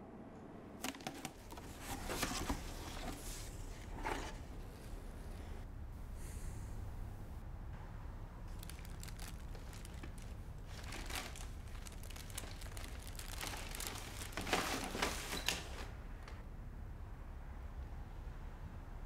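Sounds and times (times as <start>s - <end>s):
packing paper rustling: 0.8s - 4.5s, 8.5s - 16.0s.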